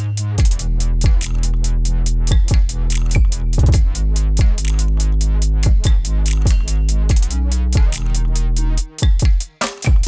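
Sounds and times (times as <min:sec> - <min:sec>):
sustained bass line: 0:00.0 - 0:08.9
crisp hi-hats ticking: 0:00.0 - 0:10.0
electronic music with steady beat: 0:00.0 - 0:10.0
deep kick drums: 0:00.4 - 0:01.2, 0:02.3 - 0:04.6, 0:05.7 - 0:08.0.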